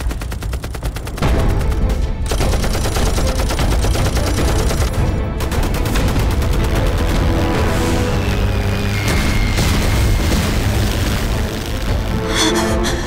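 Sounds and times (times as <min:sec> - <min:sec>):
machine gun firing: 0:00.0 - 0:07.6
dramatic film score: 0:00.0 - 0:13.0.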